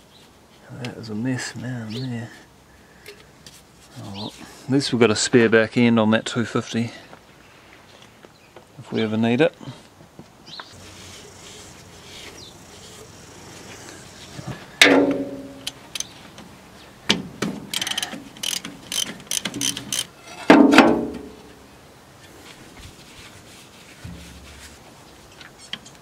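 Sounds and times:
ringing metal clanks: 0:14.8 - 0:15.7
socket ratchet clicking: 0:15.6 - 0:16.1, 0:17.7 - 0:20.2.

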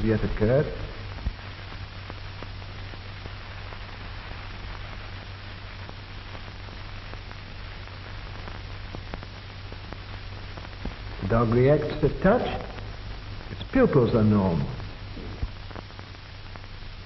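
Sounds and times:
faint crackles and clicks: 0:00.0 - 0:17.0
film soundtrack hiss: 0:00.0 - 0:17.0
low hum: 0:05.0 - 0:17.0.

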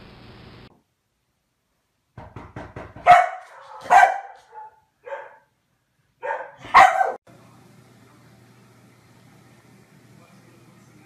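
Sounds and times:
dog barking: 0:03.0 - 0:05.5, 0:06.2 - 0:07.2.

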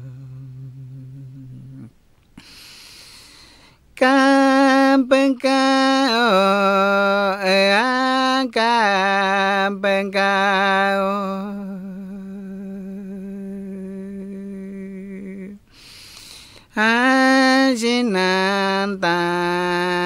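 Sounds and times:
man singing unaccompanied: 0:00.0 - 0:02.0, 0:04.0 - 0:15.6, 0:16.7 - 0:20.0.

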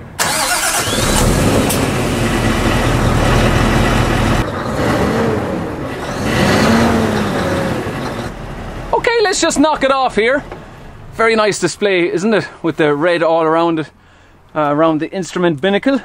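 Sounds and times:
diesel engine revving: 0:00.2 - 0:11.2.

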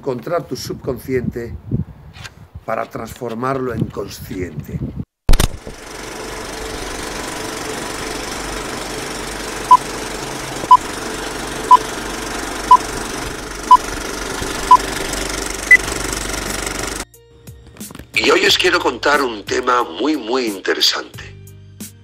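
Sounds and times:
film projector rattle: 0:05.3 - 0:17.0.

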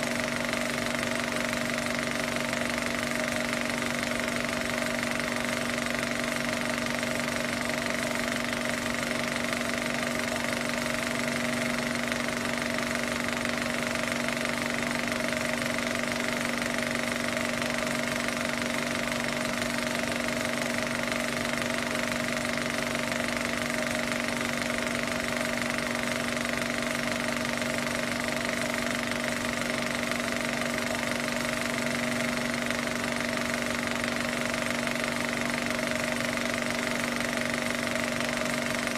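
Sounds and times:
film projector running: 0:00.0 - 0:38.9.

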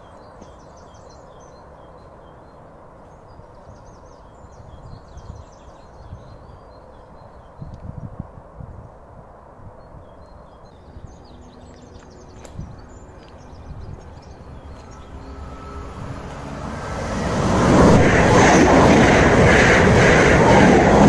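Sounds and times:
train wheels rushing on rail: 0:11.5 - 0:21.0.

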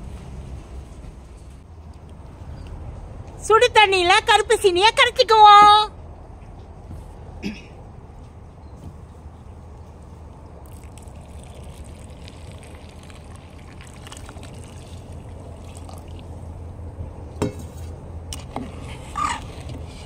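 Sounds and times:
water pouring into pot: 0:10.6 - 0:16.4.

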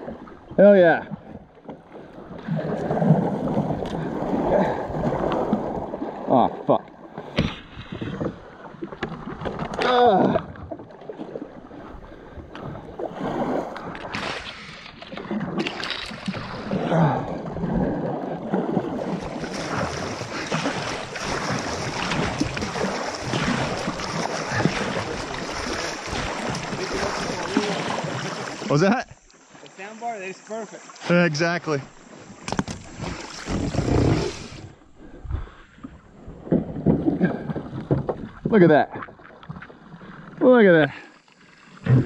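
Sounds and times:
paddle strokes splashing in water: 0:00.0 - 0:42.0
steady water hiss: 0:18.6 - 0:36.0, 0:40.0 - 0:42.0.

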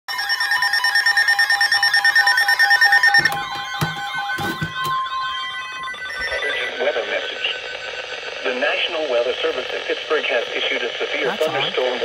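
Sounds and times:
warbling electronic tones: 0:02.9 - 0:09.0.

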